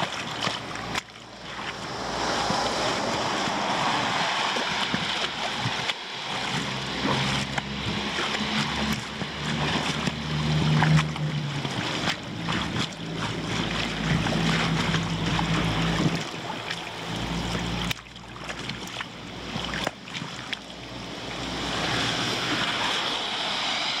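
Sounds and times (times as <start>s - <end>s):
low engine hum: 0.0s - 24.0s
water rushing down a drain: 0.0s - 24.0s.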